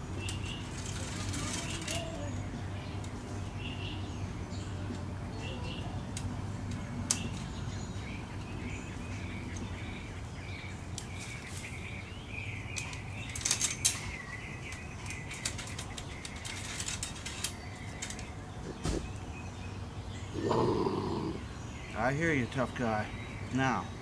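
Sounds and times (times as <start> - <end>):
animal rattling wire-mesh trap: 0.4 - 2.3, 15.0 - 18.3.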